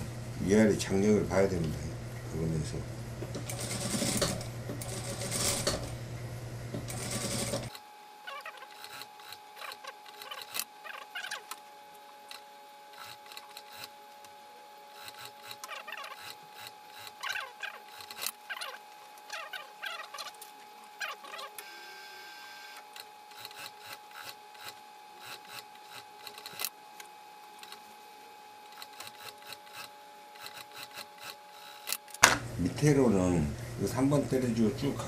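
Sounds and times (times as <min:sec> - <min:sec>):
faint steady hum: 0:00.0 - 0:35.0
industrial sewing machine running: 0:03.4 - 0:06.0, 0:06.8 - 0:07.7.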